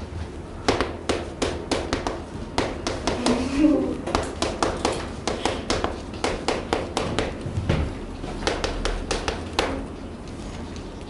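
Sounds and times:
chalk tapping on a chalkboard: 0.7s - 3.4s, 4.1s - 7.4s, 8.3s - 9.9s.

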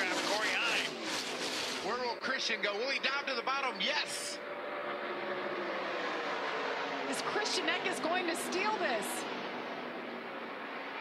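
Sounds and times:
racing truck engines droning: 0.0s - 11.0s.

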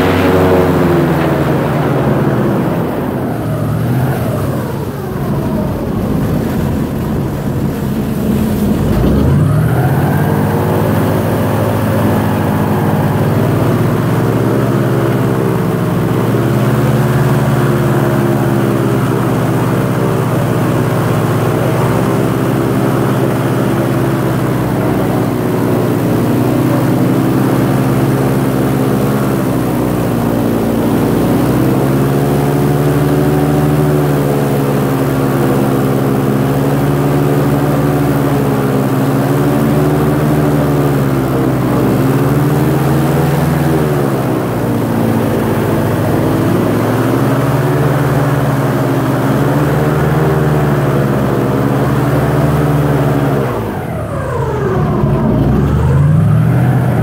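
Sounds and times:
airboat engine and propeller: 0.0s - 57.0s.

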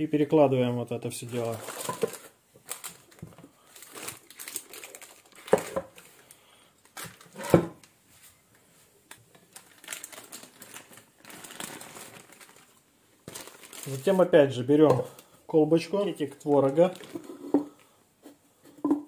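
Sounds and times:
baking parchment crinkling: 1.2s - 7.3s, 9.1s - 15.3s, 16.2s - 17.4s.

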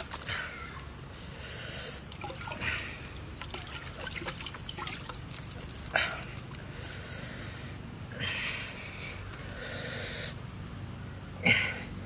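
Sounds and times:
water trickling into pot: 2.1s - 6.6s.

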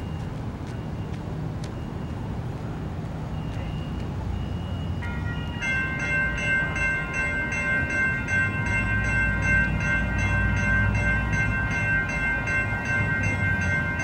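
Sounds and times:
railroad crossing bell ringing: 3.3s - 14.0s.

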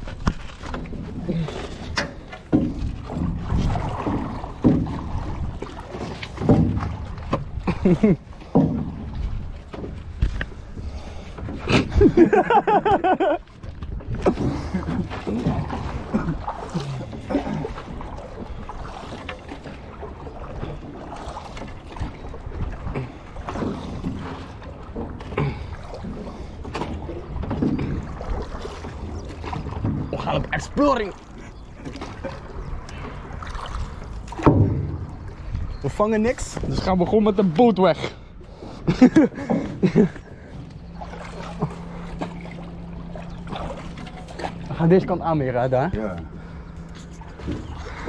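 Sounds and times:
rowboat splashing and knocking: 0.0s - 48.0s
water sloshing: 0.0s - 48.0s
wooden boat creaking: 0.0s - 48.0s
wood knocking on boat hull: 2.5s - 5.4s, 6.1s - 7.6s, 8.4s - 10.4s, 34.3s - 35.5s
wind on microphone: 2.7s - 5.7s, 34.6s - 37.0s.

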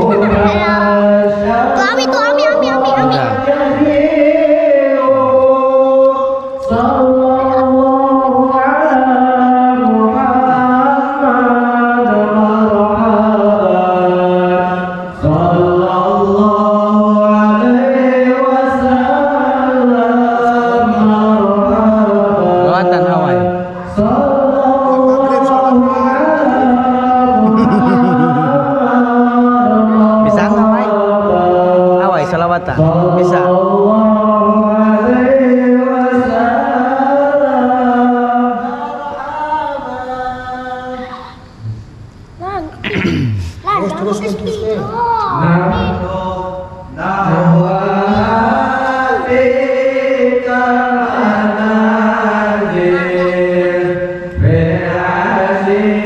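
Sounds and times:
person chanting: 0.0s - 32.0s, 45.4s - 56.0s.

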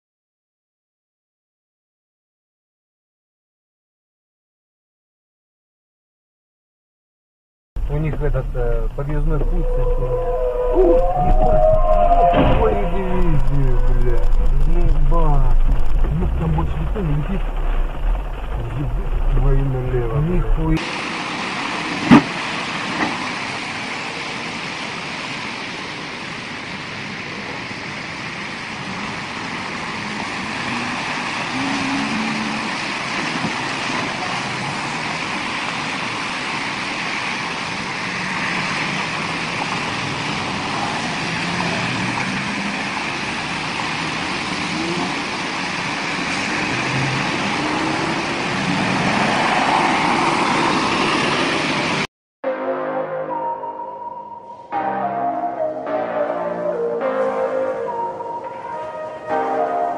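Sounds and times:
cars and bus driving past: 7.8s - 52.1s
tyres through water-filled pothole: 12.7s - 52.1s.

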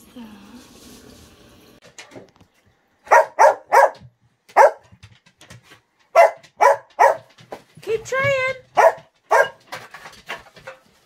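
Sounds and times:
dog barking: 3.1s - 5.0s, 6.1s - 7.3s, 8.7s - 9.7s.

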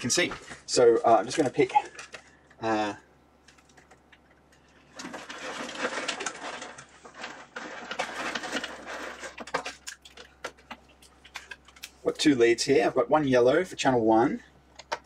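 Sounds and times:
probe leads rustling and clicking: 0.1s - 2.6s, 3.4s - 12.3s.

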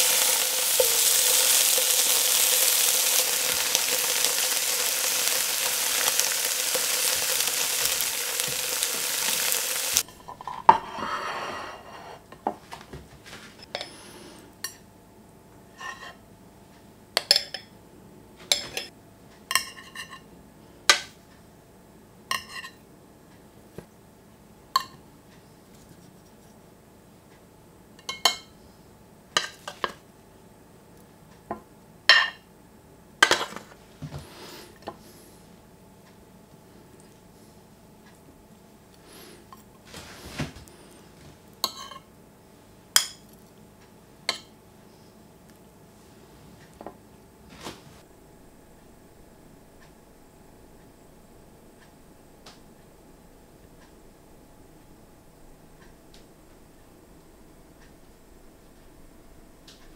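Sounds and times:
tofu sizzling in a pan: 0.0s - 10.1s
metal spoon clinking on plate: 22.3s - 22.8s, 41.6s - 42.1s.

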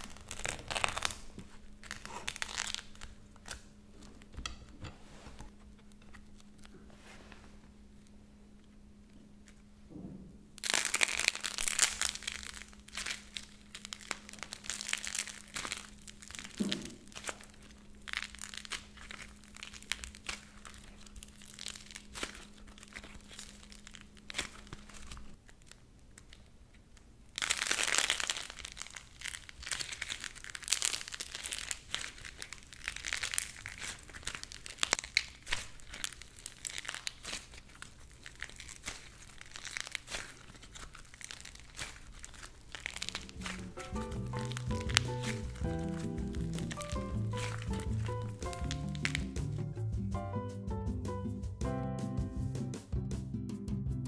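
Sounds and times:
soft clay crackling and tearing: 0.0s - 4.4s, 5.1s - 9.7s, 10.6s - 49.6s.

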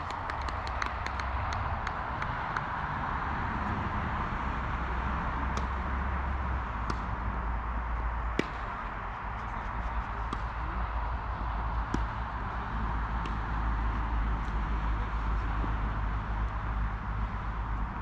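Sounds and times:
tennis balls struck or bounced: 0.0s - 2.7s, 5.4s - 14.6s
low outdoor rumble: 0.0s - 18.0s.

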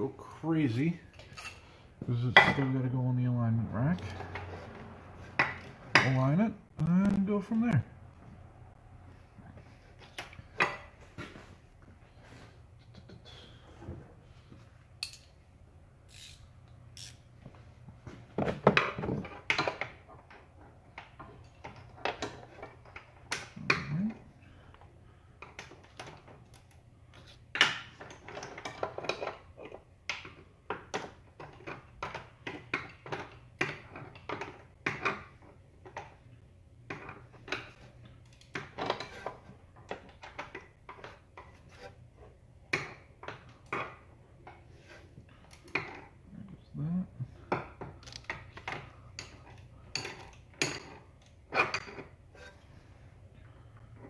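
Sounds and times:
hand tools clinking on metal: 1.1s - 2.7s.

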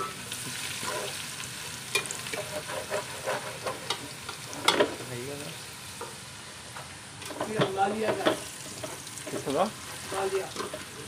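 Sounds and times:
onions sizzling in hot oil: 0.0s - 11.0s
metal spoon scraping a pot: 0.7s - 1.2s, 1.9s - 4.9s.

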